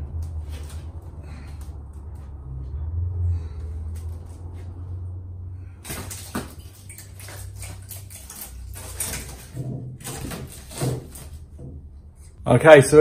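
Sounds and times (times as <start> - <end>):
fibreglass panel crackling and creaking: 5.9 - 12.3.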